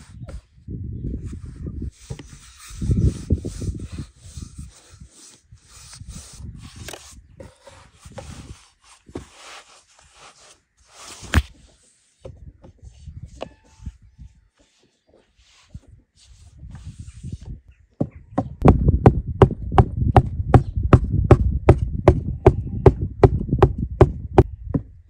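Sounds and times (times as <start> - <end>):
rubbing and rustling handling: 1.2 - 17.6.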